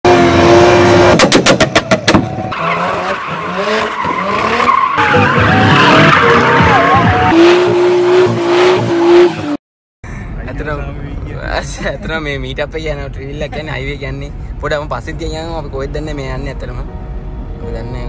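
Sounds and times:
car engines revving: 0.0 - 9.6
tyres screeching: 2.2 - 9.5.

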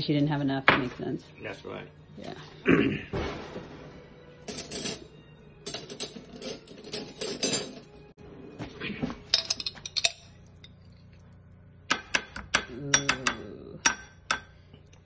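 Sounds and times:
metal cutlery clinking in drawer: 5.7 - 7.9
spoon clinking on glass jar: 9.4 - 10.8.

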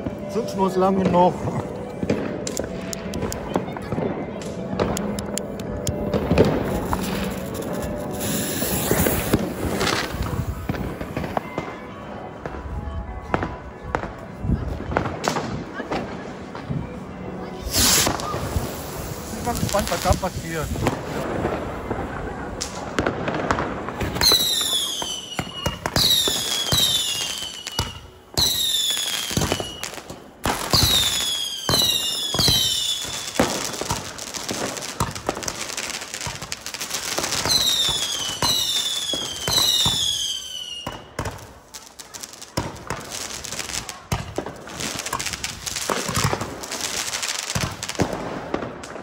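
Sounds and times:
firework crackling: 0.0 - 12.7, 17.4 - 49.0
fireworks firing rapid shots: 1.4 - 11.8, 17.6 - 49.0
falling firework whistles: 6.4 - 11.4, 17.6 - 21.2, 24.1 - 30.0, 30.7 - 33.4.

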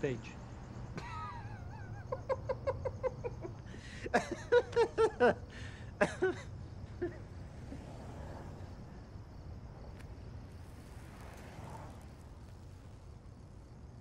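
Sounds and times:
person laughing: 1.0 - 7.4.

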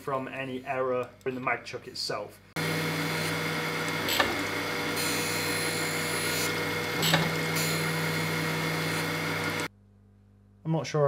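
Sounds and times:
grinder motor hum: 2.6 - 9.7
grinding wheel hissing on steel: 2.6 - 9.7.

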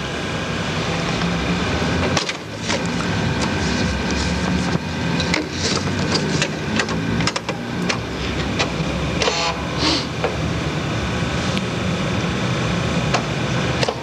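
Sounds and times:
steady electrical hum: 0.0 - 14.0
floppy disk drives clicking: 5.2 - 9.6, 13.1 - 14.0.

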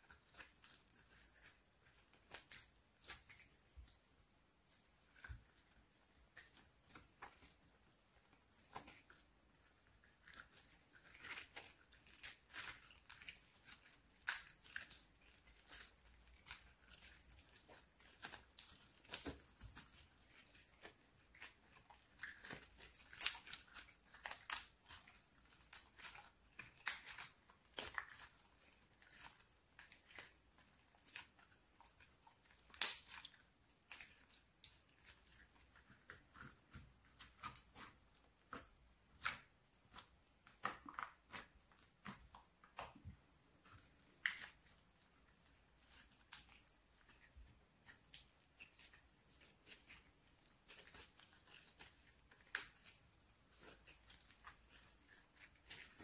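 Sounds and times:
slime clicking and popping: 32.6 - 34.0.

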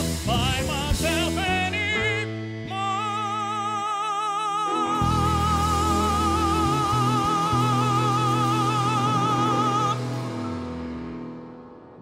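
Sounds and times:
low bass notes: 0.0 - 3.9, 4.8 - 12.0
tenor singing high note with vibrato: 3.0 - 10.4.

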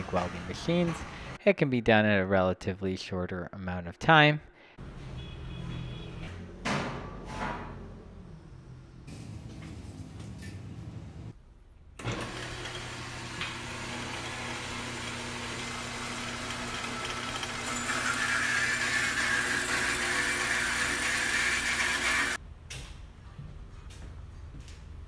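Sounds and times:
bandsaw cutting metal: 12.0 - 22.4
bandsaw motor humming: 12.0 - 22.4.

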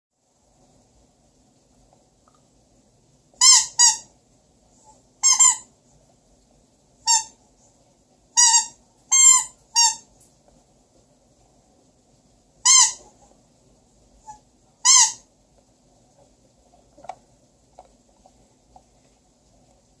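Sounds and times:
squeaky toy squeaks: 3.4 - 4.1, 5.2 - 5.7, 7.1 - 7.4, 8.4 - 10.1, 12.7 - 13.1, 14.3 - 15.2.

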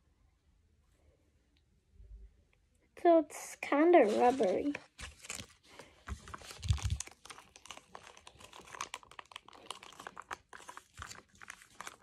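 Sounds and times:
plastic pouch crinkling: 4.1 - 12.0.

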